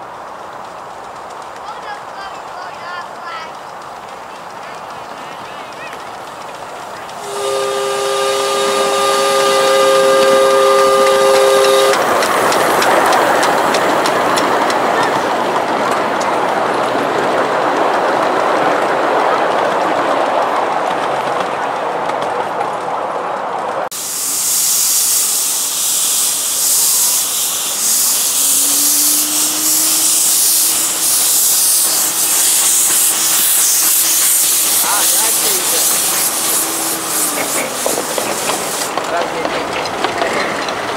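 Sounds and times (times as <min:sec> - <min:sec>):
small steam engine passing: 0:00.0 - 0:40.9
steam locomotive chime whistle: 0:07.2 - 0:12.3, 0:24.0 - 0:38.9
low rising tone: 0:28.4 - 0:32.9.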